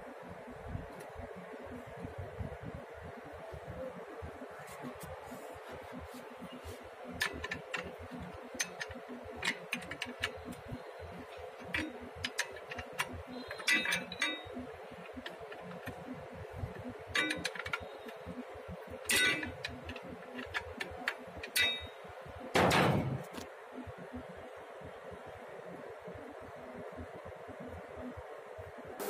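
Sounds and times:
spanner clinking against bolt: 7.2 - 16.0, 16.7 - 18.4, 19.0 - 22.0.

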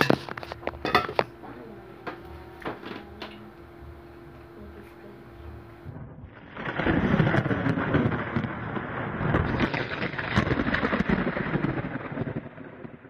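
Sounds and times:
thunder rumbling: 0.0 - 13.0
rain: 6.4 - 13.0.

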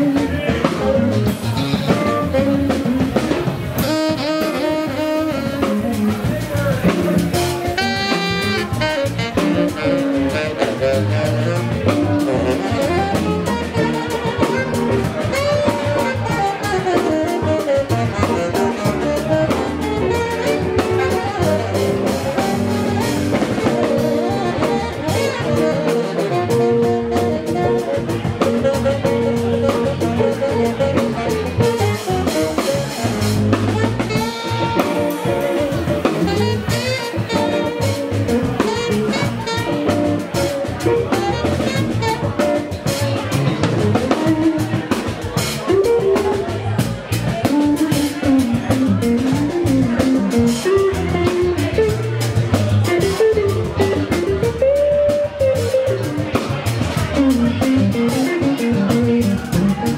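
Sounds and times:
drum kit: 0.0 - 59.9
electric guitar: 0.0 - 59.9
tenor saxophone melody: 0.0 - 59.9.

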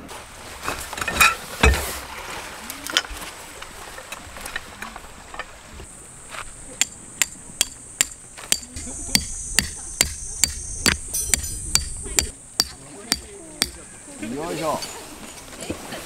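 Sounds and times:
hammer striking metal stake: 6.8 - 13.8.

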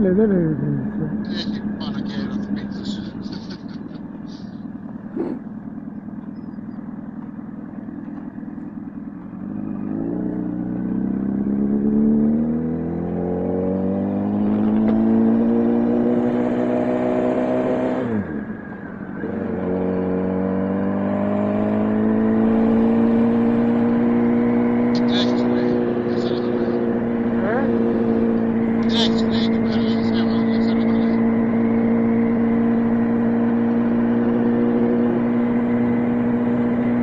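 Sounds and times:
motorcycle engine accelerating: 0.0 - 37.0.

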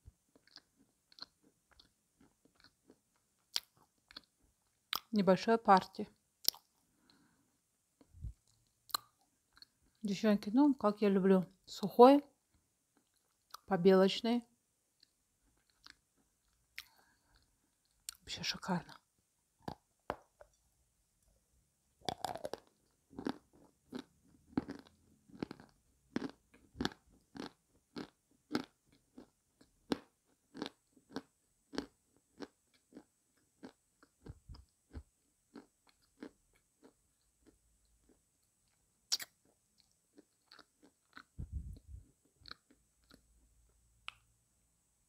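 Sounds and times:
crisp chewing crunches: 0.3 - 5.1, 22.0 - 41.4, 42.2 - 43.3.

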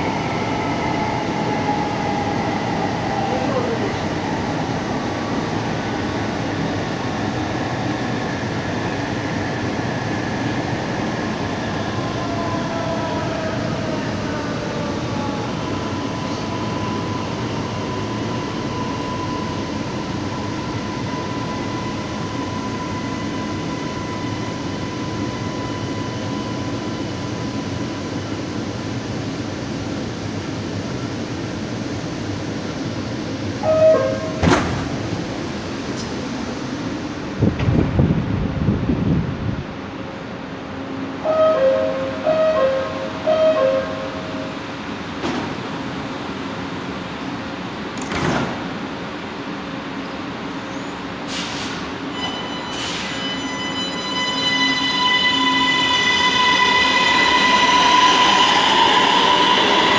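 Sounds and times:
metro train rumble: 0.0 - 59.9.

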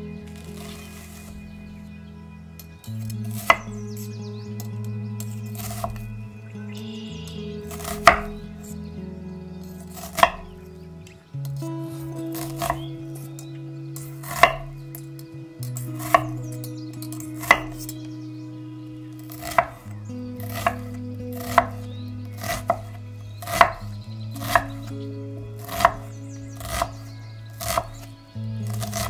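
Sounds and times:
knife chopping on wooden board: 7.7 - 8.4, 10.0 - 10.5, 14.2 - 14.7, 19.4 - 19.8, 20.4 - 21.8, 22.4 - 23.8, 24.4 - 24.8, 25.6 - 26.0, 27.6 - 28.0, 28.7 - 29.0.

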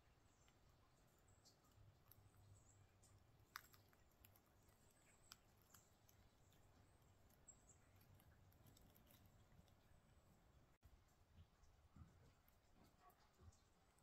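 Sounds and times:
light clicks and ticks: 0.0 - 14.0.

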